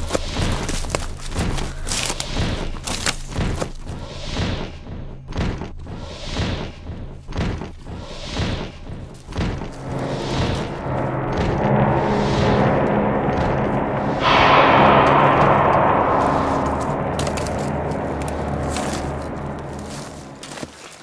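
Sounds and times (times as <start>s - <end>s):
low held drone: 8.0s - 20.7s
swells of hiss: 9.6s - 20.6s.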